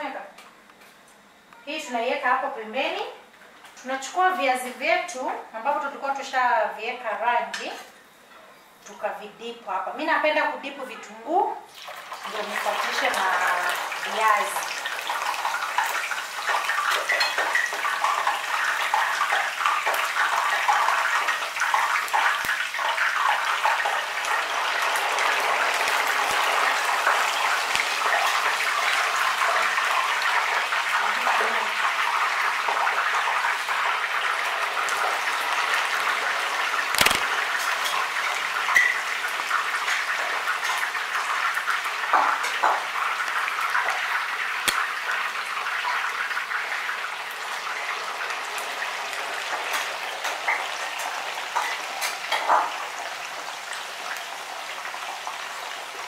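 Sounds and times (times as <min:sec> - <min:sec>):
potatoes sizzling in hot oil: 0:11.2 - 0:56.0.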